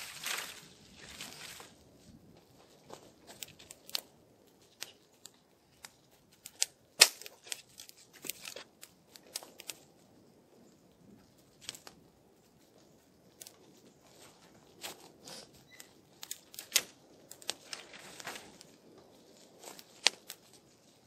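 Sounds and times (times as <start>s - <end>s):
frozen leaves and fabric crackling: 0.0s - 21.0s.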